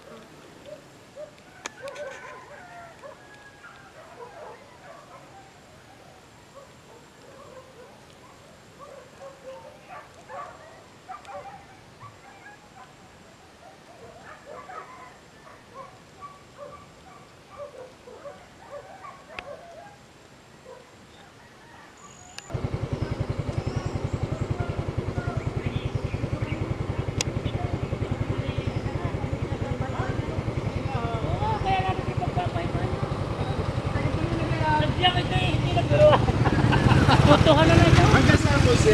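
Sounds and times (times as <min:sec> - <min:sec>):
bird calls: 0:20.6 - 0:32.2
small engine running: 0:22.5 - 0:38.9.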